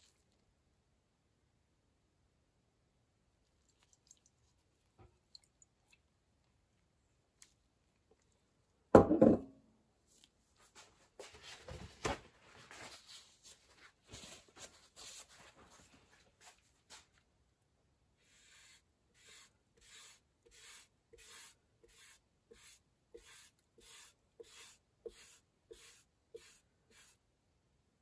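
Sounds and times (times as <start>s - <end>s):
glass jar knocking on wooden bench: 9.0s - 9.5s.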